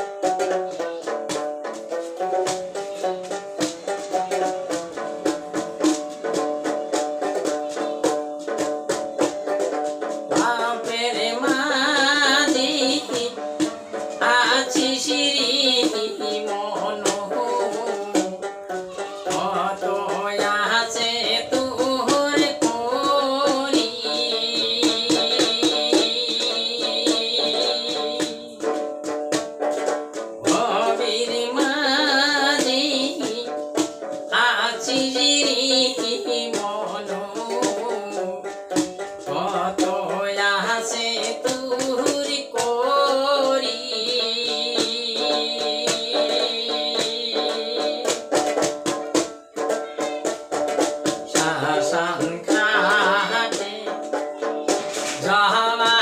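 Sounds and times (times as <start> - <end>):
plucked folk lute: 0.0 - 56.0
man singing folk song: 10.3 - 28.8, 30.4 - 33.6, 34.3 - 48.4, 51.2 - 56.0.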